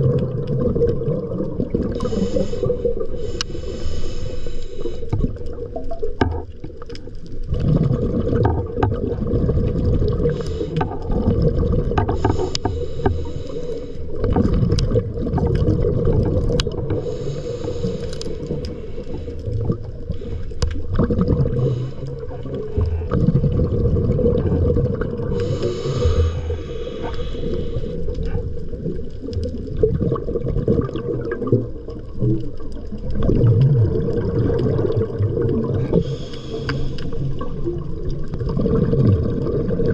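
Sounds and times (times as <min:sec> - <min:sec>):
underwater gurgling and bubbles: 0:00.0 - 0:39.9
breathing regulator hiss: 0:01.9 - 0:05.2, 0:10.3 - 0:11.1, 0:12.1 - 0:14.2, 0:16.9 - 0:19.4, 0:21.6 - 0:23.1, 0:25.3 - 0:28.4, 0:35.8 - 0:37.6
steady hum: 0:25.3 - 0:28.2.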